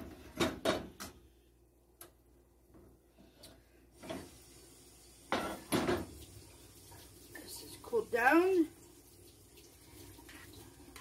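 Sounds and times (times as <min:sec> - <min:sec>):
cookware knocking and clattering: 0:00.0 - 0:01.1, 0:05.3 - 0:06.1.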